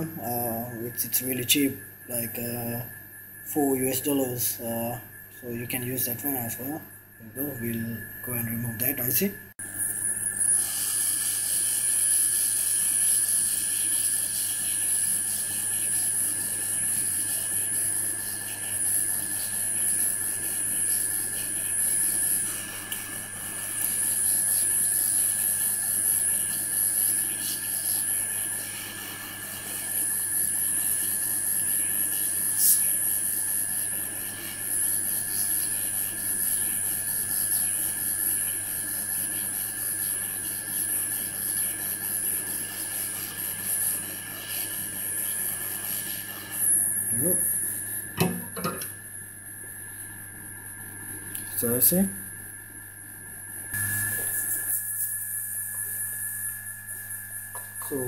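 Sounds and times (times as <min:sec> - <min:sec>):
hot air blower hissing: 0:10.3 - 0:15.7, 0:31.7 - 0:33.1, 0:42.8 - 0:49.0, 0:54.1 - 0:58.0.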